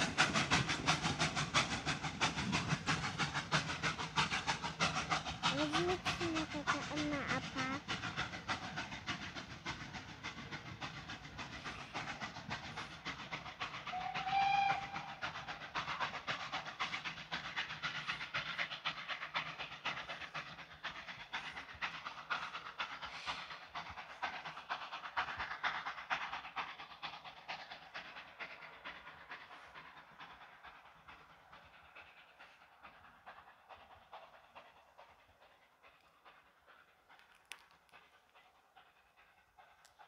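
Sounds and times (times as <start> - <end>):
steam locomotive chuffing: 0.0 - 40.0
steam whistle blast: 13.9 - 15.2.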